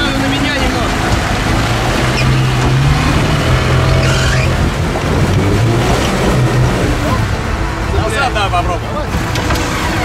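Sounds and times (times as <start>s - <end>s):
engine revving: 0.0s - 10.0s.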